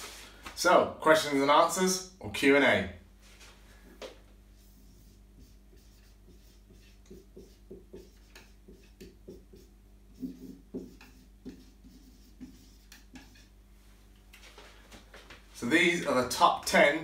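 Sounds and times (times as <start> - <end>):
marker squeaking on whiteboard: 4.6 - 13.5.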